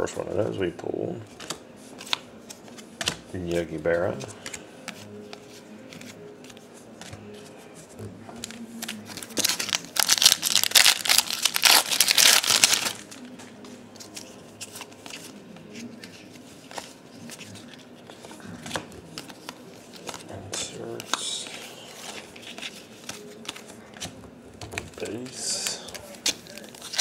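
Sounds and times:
cards rustling and flicking: 4.1 - 7.5, 8.4 - 27.0
foil pack crackling: 9.1 - 13.2.

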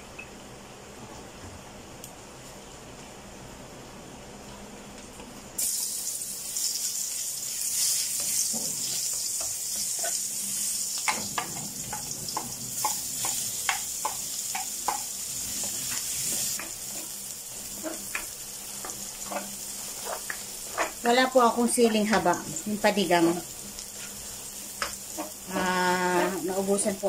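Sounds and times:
garlic sizzling in hot oil: 5.6 - 27.0.

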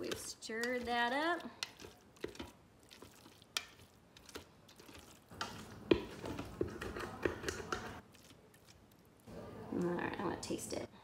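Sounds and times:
spoon knocking and scraping pot: 0.0 - 8.0
spoon stirring in steel pot: 0.0 - 10.4.

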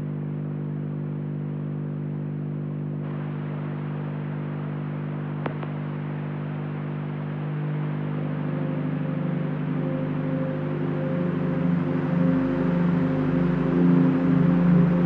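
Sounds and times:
hiss-like noise: 3.0 - 15.0
ambient drone music: 7.0 - 15.0.

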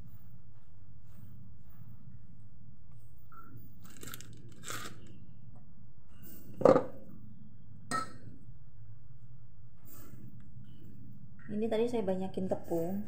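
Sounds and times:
steady low hum: 0.0 - 13.0
wrapper rustling: 3.8 - 5.0.

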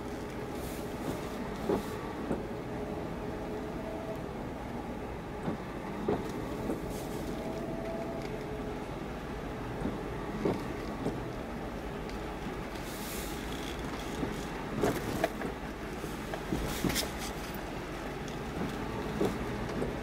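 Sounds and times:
light rain hissing: 11.4 - 13.6.

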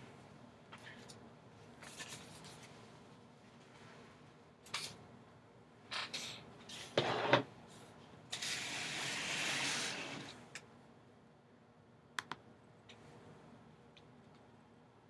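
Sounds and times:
box scraping across table: 6.9 - 7.4.

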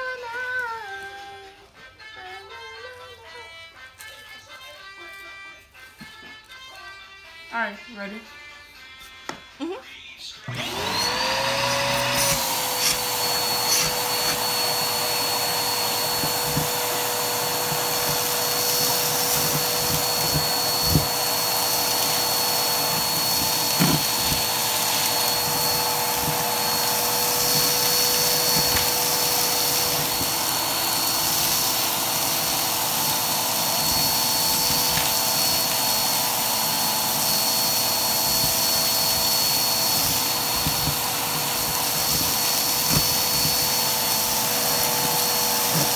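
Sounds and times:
vacuum cleaner whine: 10.4 - 45.9
grit rattling up vacuum hose: 11.4 - 45.9.

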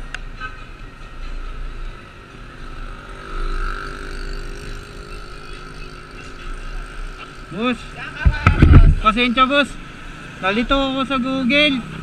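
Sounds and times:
road noise: 0.0 - 12.0
motorcycle engine: 2.7 - 11.4
wind rumble on microphone: 8.2 - 9.1.

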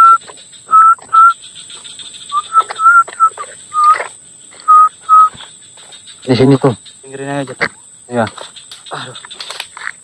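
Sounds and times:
short whistled notes: 0.0 - 1.4, 2.3 - 4.0, 4.6 - 5.3
high insect buzz: 0.0 - 10.0.

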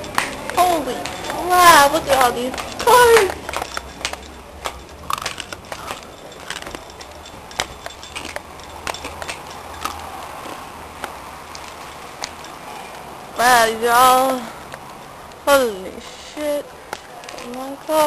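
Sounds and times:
footsteps: 0.0 - 13.1.

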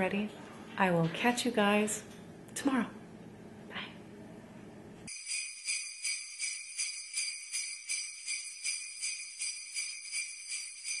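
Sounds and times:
jingle bells shaken: 5.1 - 11.0.

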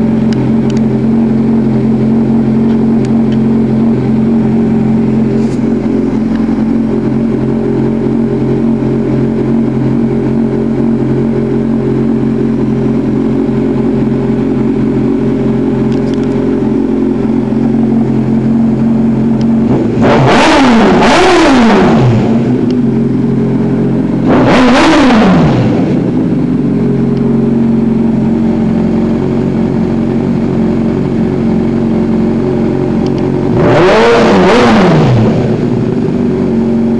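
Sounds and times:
motorcycle engine idling: 0.0 - 36.9
quick throttle revs: 19.7 - 22.6, 24.2 - 26.0.

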